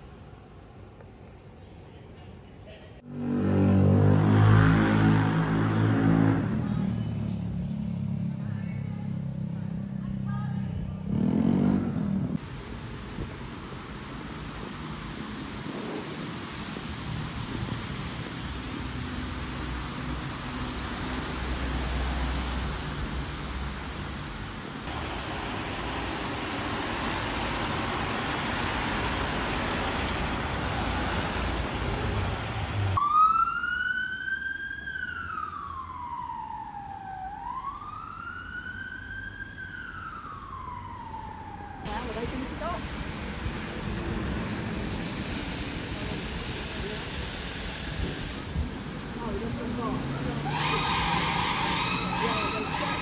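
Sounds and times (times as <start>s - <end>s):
street traffic noise: 0.0s - 53.0s
emergency siren wailing: 32.9s - 42.8s, 50.0s - 53.0s.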